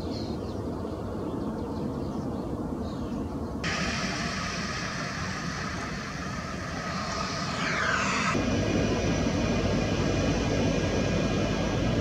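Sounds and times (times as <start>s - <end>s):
deep jet engine rumble: 2.5s - 12.0s
jet engine whine: 3.5s - 12.0s.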